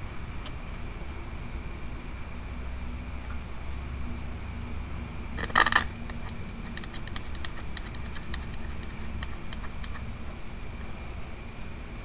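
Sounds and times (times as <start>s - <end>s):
rattling scrape: 5.4s - 10.1s
small metal parts clicking: 5.4s - 10.1s.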